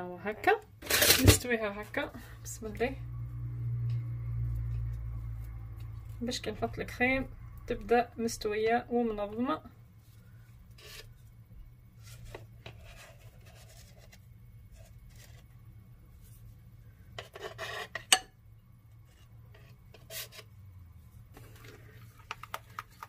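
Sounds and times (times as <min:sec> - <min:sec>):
spatula scraping plate: 0:10.8 - 0:11.2, 0:17.2 - 0:18.3, 0:19.0 - 0:20.5
spoon scraping ceramic bowl: 0:17.2 - 0:18.3.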